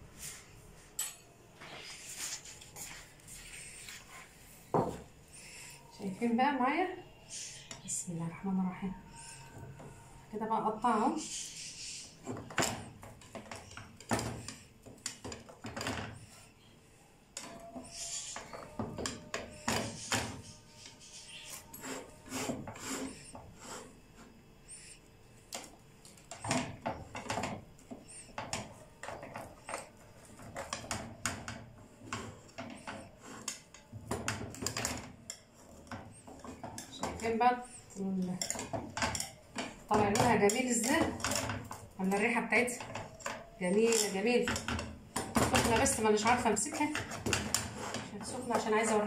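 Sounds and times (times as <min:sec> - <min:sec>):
cutter scraping metal pan: 0:19.5 - 0:24.3.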